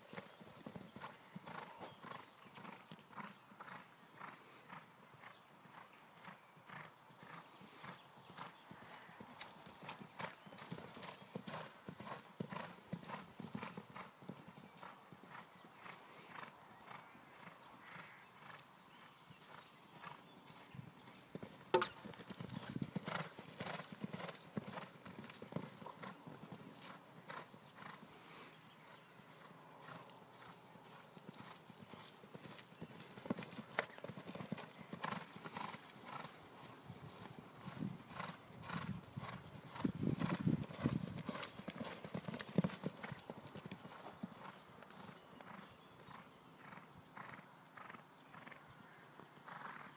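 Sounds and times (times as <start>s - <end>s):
horse hoofbeats on sand: 29.8s - 44.6s.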